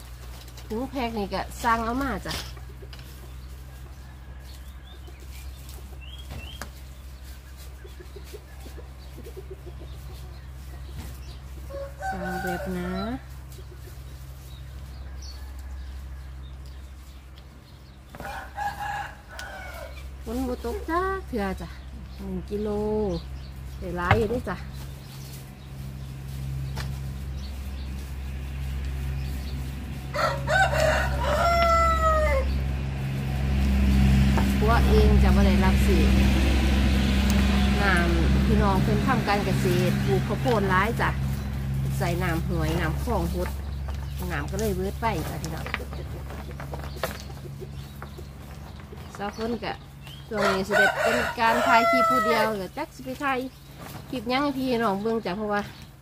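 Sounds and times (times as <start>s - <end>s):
rooster crowing: 11.7s - 13.2s, 18.2s - 20.0s, 30.0s - 32.6s, 50.3s - 52.6s.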